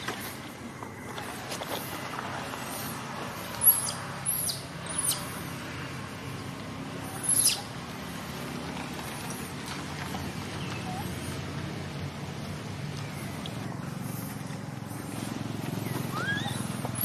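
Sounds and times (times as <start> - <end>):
baby monkey squealing: 3.6 - 5.4, 7.0 - 7.7, 10.8 - 11.3, 15.8 - 17.0.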